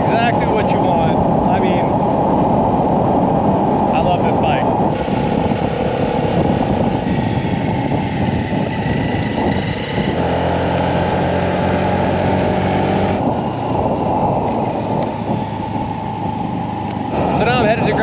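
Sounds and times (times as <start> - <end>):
wind buffeting microphone: 0.0 - 18.0
scooter engine humming: 4.8 - 18.0.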